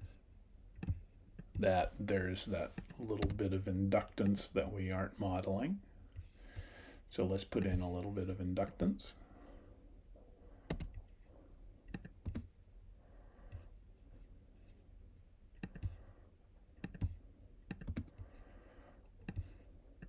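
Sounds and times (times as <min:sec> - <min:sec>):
mouse and keyboard clicks: 0:16.8 - 0:18.2.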